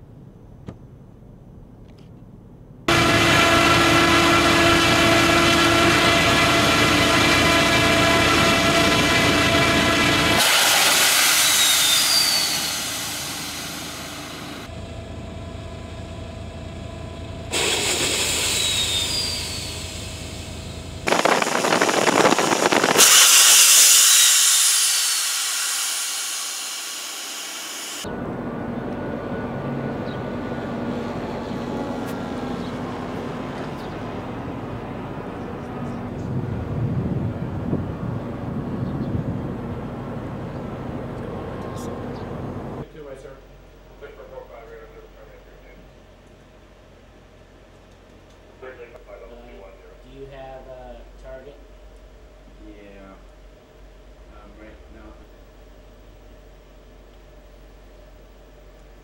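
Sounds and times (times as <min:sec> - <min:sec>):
catapult launch rushing noise: 0:10.4 - 0:14.6, 0:21.1 - 0:28.0
small piston engine running: 0:21.1 - 0:28.0.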